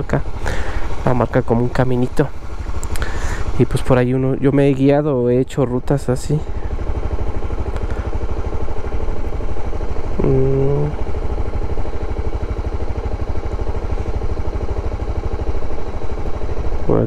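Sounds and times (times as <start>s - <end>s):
motorcycle engine idling: 0.0s - 17.0s
person humming: 10.2s - 11.0s.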